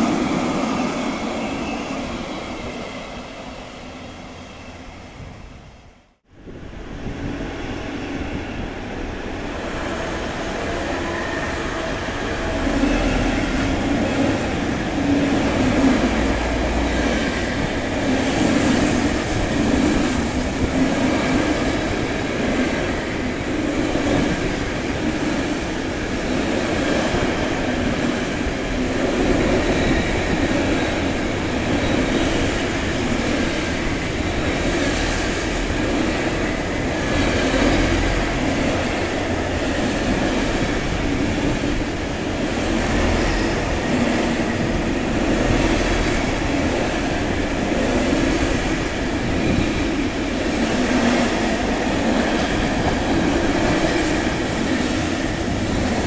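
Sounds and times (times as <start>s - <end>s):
train running past: 0.0s - 56.0s.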